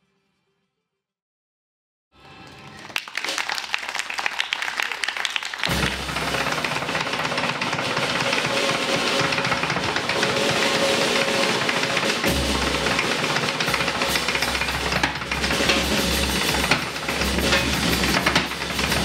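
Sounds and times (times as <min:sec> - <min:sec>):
drum kit with heavy bass: 0:05.7 - 0:19.0
tap-dance steps clicking: 0:05.7 - 0:19.0.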